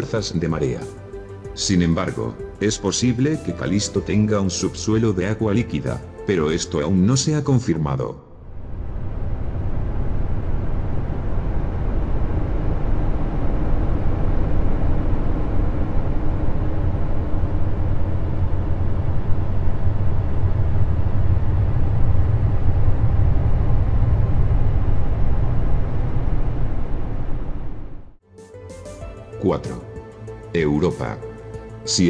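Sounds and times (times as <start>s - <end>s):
faint steady hum: 7.9s - 28.2s
deep rumbling drone: 8.2s - 28.2s.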